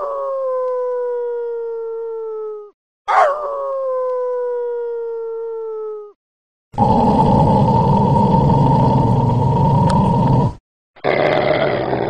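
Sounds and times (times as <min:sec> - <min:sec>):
dog howling: 0:03.1 - 0:05.7.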